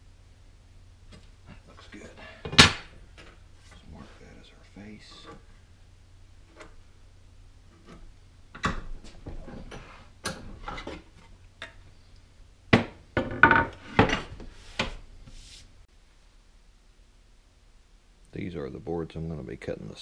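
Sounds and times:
wood and tools knocking on workbench: 12.7 - 15.0.

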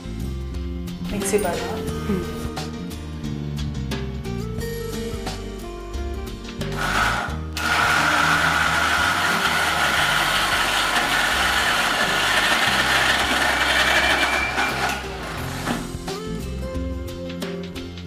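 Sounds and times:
mixer grinder motor: 6.6 - 16.1.

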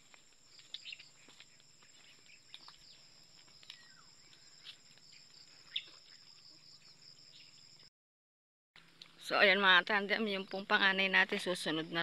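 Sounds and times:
high-pitched insect chorus: 0.0 - 7.9.

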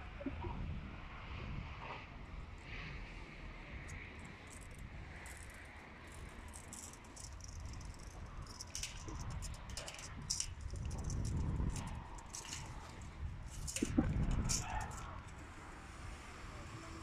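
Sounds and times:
tape measure scratching steel drum: 6.4 - 15.4.

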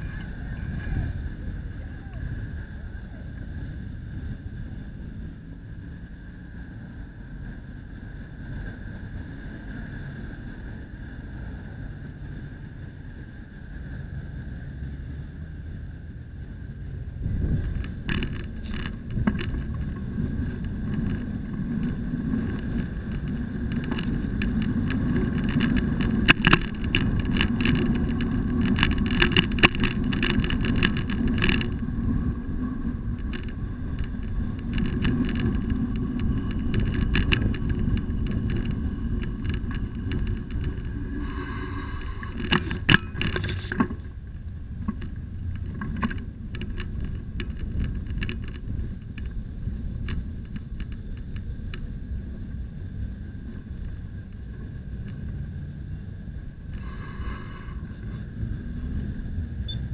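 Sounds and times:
street traffic: 0.0 - 59.9
wind and road noise: 0.0 - 59.9.

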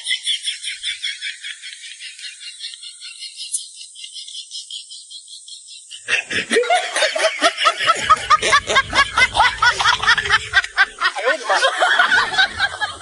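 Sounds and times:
sly snickering laugh: 6.0 - 13.0.

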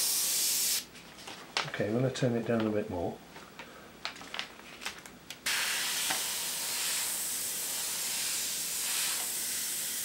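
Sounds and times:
airbrush air hiss: 0.0 - 0.9, 5.5 - 10.0.

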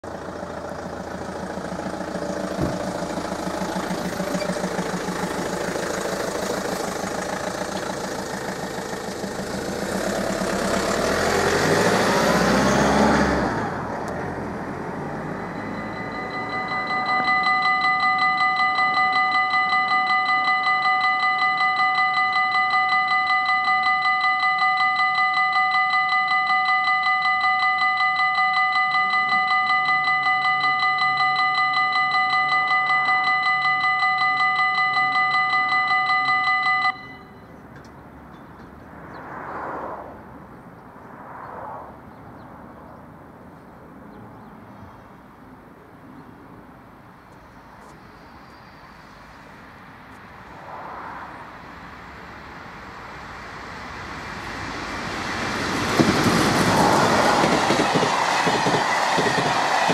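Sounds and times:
vehicle engine: 0.0 - 59.9
level crossing warning bell: 0.1 - 12.3, 15.0 - 38.7, 55.6 - 59.9.

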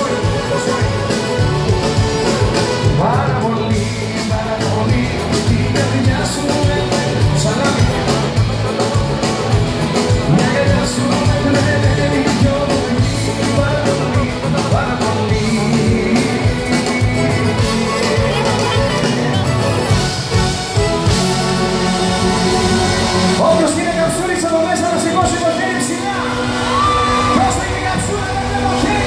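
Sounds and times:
live pop band playing: 0.0 - 29.0.

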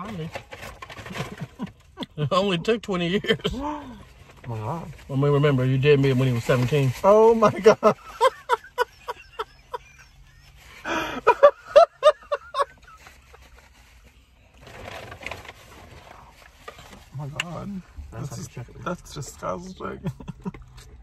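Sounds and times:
soft rustling: 3.4 - 10.9, 12.0 - 19.6
people laughing: 7.6 - 13.0.

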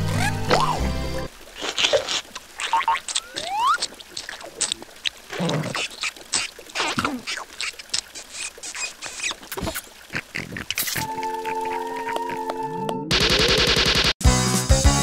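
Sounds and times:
squeaky calls clicks and pops: 2.2 - 13.1
cartoon gibberish voices: 2.6 - 4.3, 5.3 - 12.6.

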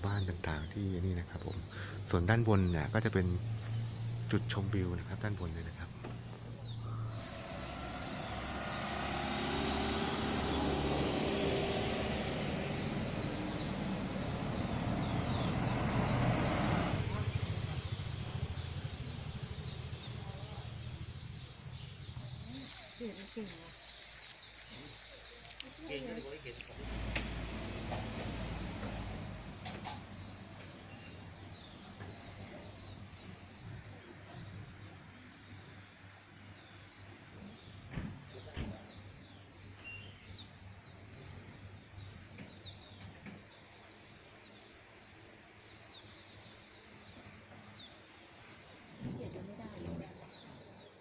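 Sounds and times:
small birds chirping: 0.0 - 51.0
pickup truck driving uphill: 2.0 - 22.2, 26.7 - 33.2
low rumble: 2.9 - 22.6, 26.6 - 33.9.

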